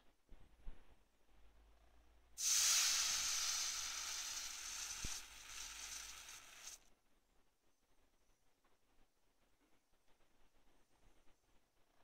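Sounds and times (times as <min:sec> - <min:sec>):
hot metal hissing in water: 0:02.4 - 0:06.9.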